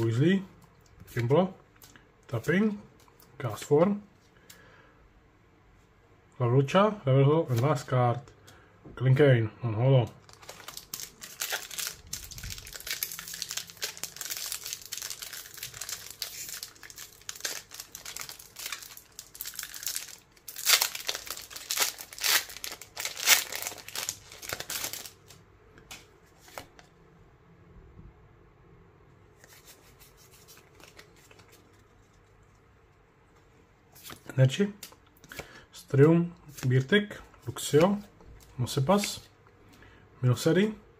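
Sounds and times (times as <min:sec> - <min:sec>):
foil wrapper crinkling and tearing: 0:10.2 - 0:25.4.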